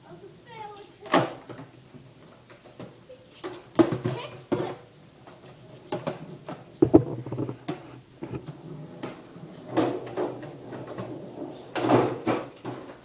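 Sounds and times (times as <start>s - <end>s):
skateboard clattering on concrete: 3.5s - 13.0s
skateboard scraping onto plywood: 6.8s - 9.2s.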